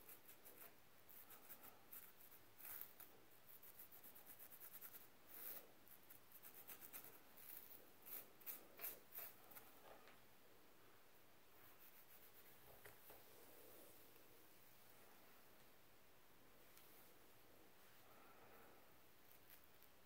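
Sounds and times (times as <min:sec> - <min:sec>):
comb scratching scalp: 0:00.0 - 0:09.8, 0:11.6 - 0:13.1, 0:19.2 - 0:20.0.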